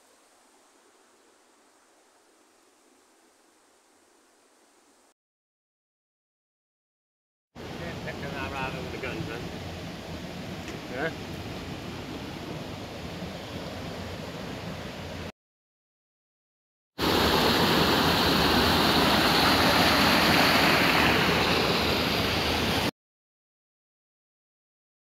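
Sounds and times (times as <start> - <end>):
stream rushing over stones: 17.0 - 22.9.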